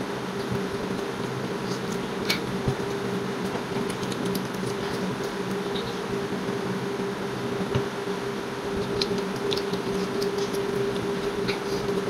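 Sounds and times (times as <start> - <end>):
steady mechanical hum: 0.0 - 12.0
soft clicks of eating: 3.4 - 6.0, 8.8 - 11.7.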